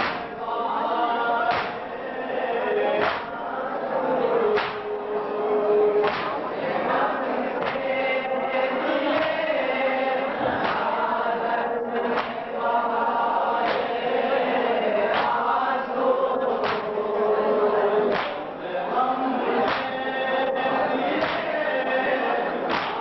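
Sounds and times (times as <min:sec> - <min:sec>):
sharp rhythmic beat: 0:00.0 - 0:03.7, 0:04.3 - 0:14.4, 0:15.0 - 0:15.9, 0:18.1 - 0:20.3, 0:21.0 - 0:21.9, 0:22.5 - 0:23.0
men chanting in unison: 0:00.0 - 0:23.0.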